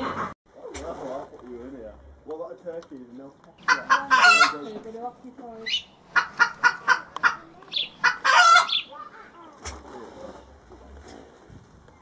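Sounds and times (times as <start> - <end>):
turkeys gobbling: 3.6 - 4.8, 5.6 - 9.8.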